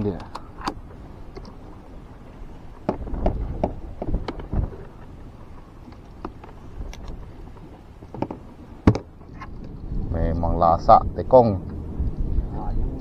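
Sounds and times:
low thumps: 2.8s - 5.0s
low rumble: 9.1s - 13.0s.

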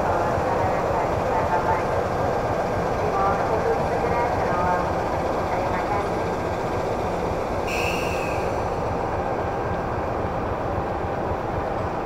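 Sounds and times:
diesel train engine rumbling: 0.0s - 12.0s
short high-pitched tone: 7.7s - 8.6s.

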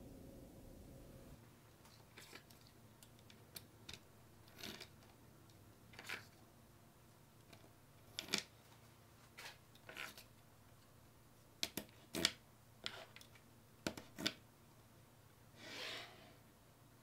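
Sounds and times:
short rubbing scrape: 15.6s - 16.4s.

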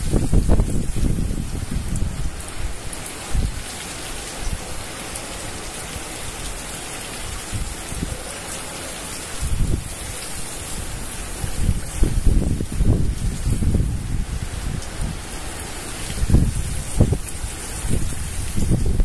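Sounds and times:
wind buffeting microphone: 0.0s - 3.7s, 9.3s - 19.0s
heavy rain pouring: 0.0s - 19.0s.

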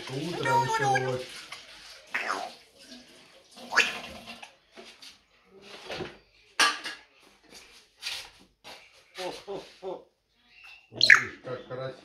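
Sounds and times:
parrot squawking: 0.3s - 1.3s, 2.1s - 2.6s, 3.6s - 4.0s, 10.9s - 11.5s.

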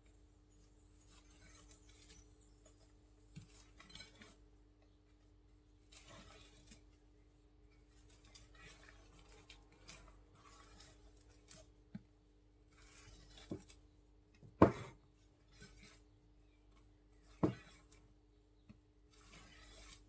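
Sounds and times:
spatula swishing through batter: 5.5s - 11.9s, 12.5s - 14.0s, 19.0s - 20.0s.

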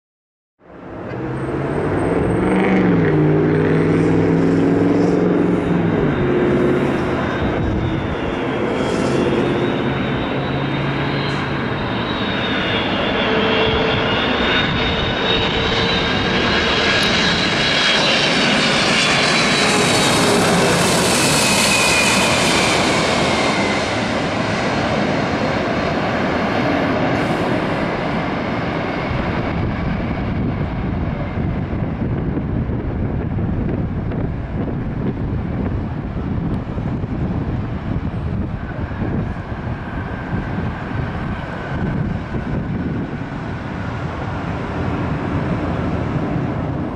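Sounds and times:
jet engine rumble: 0.6s - 46.9s.

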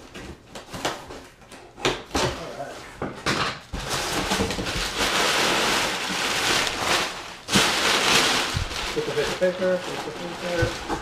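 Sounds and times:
packing paper crinkling: 3.8s - 11.0s
sharp paper crunch: 3.8s - 11.0s.

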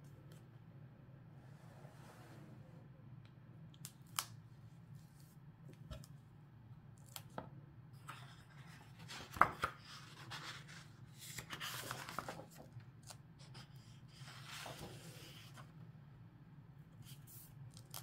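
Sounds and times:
book pages turning: 8.0s - 15.7s.

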